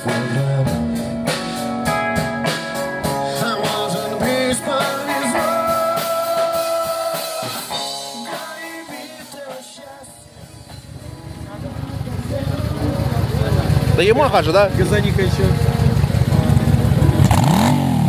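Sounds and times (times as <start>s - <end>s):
person singing: 0.0s - 1.4s, 3.0s - 14.0s
rock band music: 0.0s - 18.0s.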